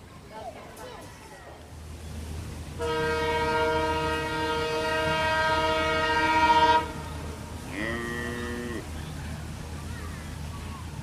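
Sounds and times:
locomotive air horn blast: 2.8 - 8.8.

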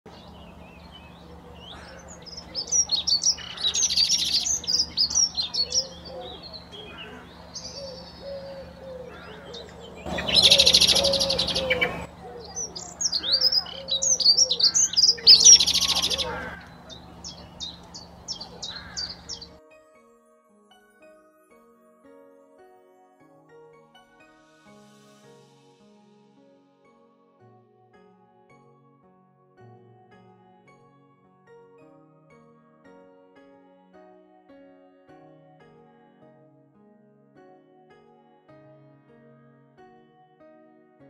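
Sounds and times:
blackbird singing: 0.1 - 19.6.

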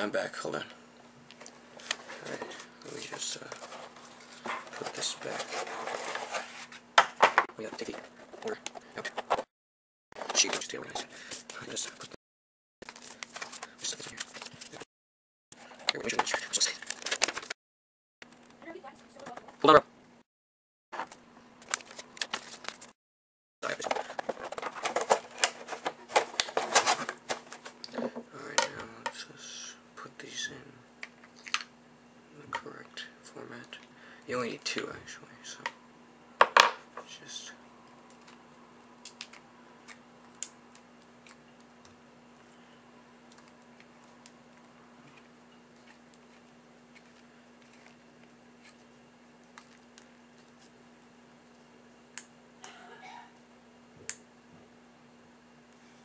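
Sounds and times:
faint steady hum: 23.6 - 56.0.

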